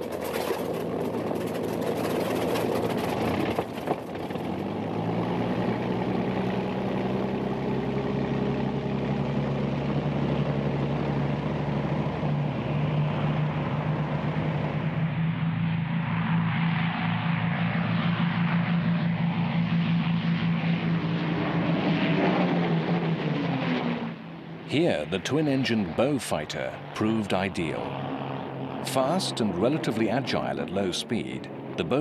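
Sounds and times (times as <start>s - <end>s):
aircraft engine starting and droning: 0.0s - 32.0s.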